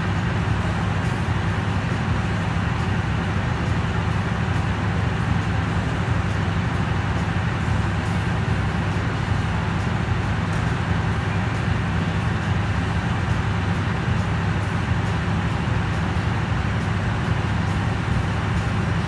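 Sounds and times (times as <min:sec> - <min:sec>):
locomotive engine idling: 0:00.0 - 0:19.0.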